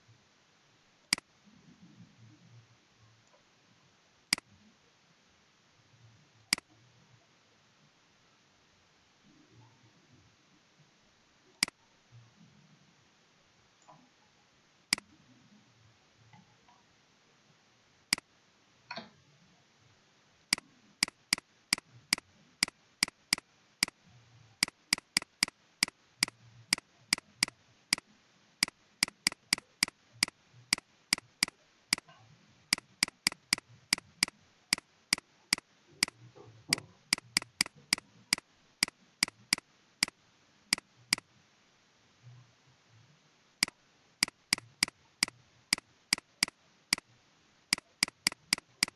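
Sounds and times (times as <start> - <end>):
computer mouse clicking: 1.1 - 1.3, 20.5 - 24.0, 24.6 - 41.3, 43.6 - 47.1, 47.7 - 48.9.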